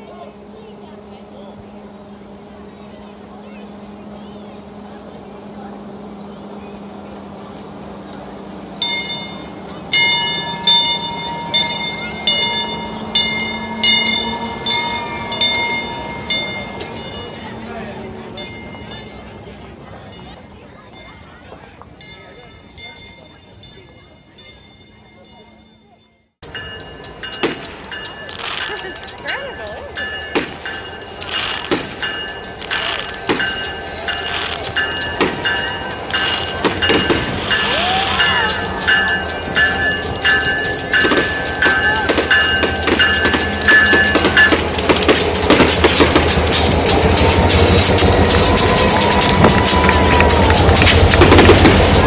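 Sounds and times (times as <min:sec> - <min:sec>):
locomotive bell ringing: 0:00.0 - 0:52.0
low hum of passing train: 0:00.0 - 0:52.0
sharp bangs: 0:27.3 - 0:29.2, 0:30.3 - 0:52.0.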